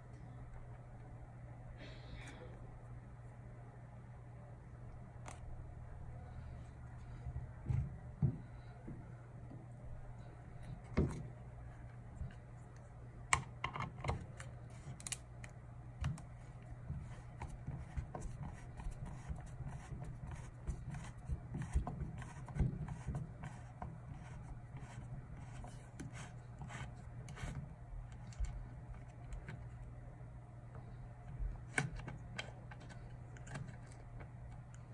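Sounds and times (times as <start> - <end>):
steady low hum: 0.0 - 34.9.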